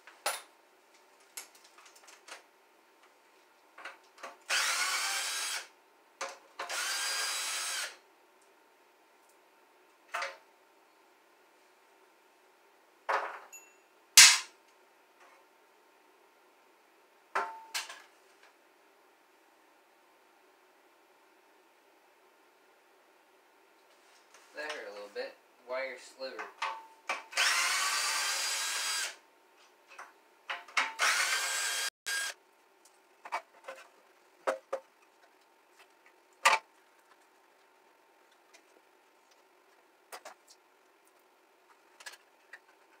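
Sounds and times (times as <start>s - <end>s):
cordless drill whining: 4.5s - 5.7s, 6.7s - 8.0s, 27.4s - 29.2s, 31.0s - 32.4s.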